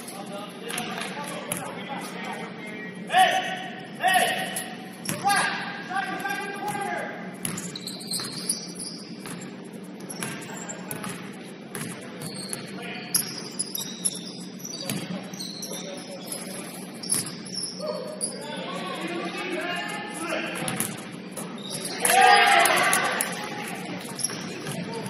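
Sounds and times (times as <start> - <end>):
players' voices: 0.0 - 7.5, 9.6 - 25.0
sneakers squeaking: 3.4 - 25.0
basketball bouncing on court: 7.4 - 8.5, 9.2 - 13.4, 14.8 - 15.1.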